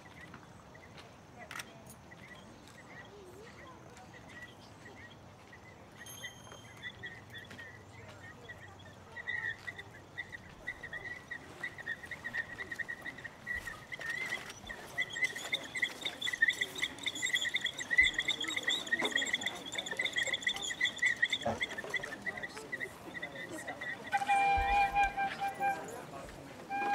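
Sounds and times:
whistle bird call trill: 6.0s - 7.5s, 9.1s - 26.0s, 26.7s - 26.9s.

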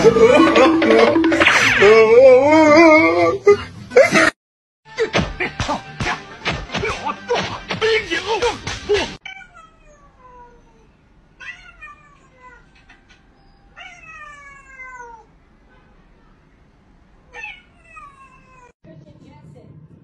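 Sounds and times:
cat meowing: 9.2s - 12.9s, 13.8s - 15.3s, 17.3s - 18.7s.

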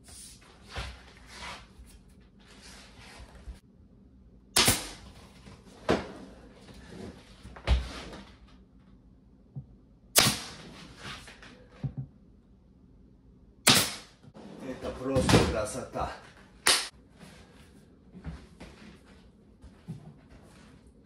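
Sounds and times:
pin nailer firing: 4.6s - 5.1s, 10.2s - 10.6s, 13.6s - 14.2s.

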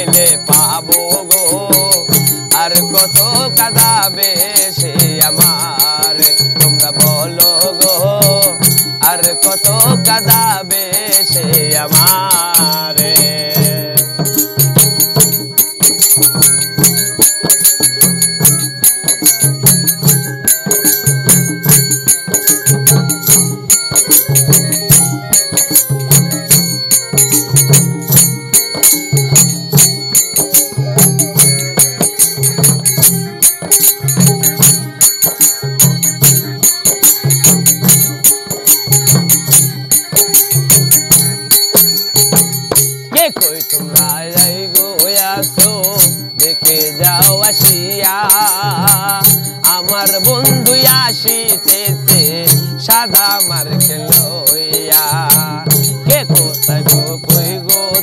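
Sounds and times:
cymbals and tambourine jingling: 0.0s - 58.0s
hand drum beating: 0.0s - 58.0s
folk band playing: 16.1s - 43.9s.

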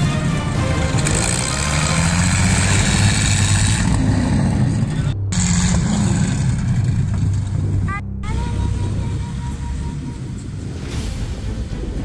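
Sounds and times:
tank engine running: 0.0s - 8.0s.

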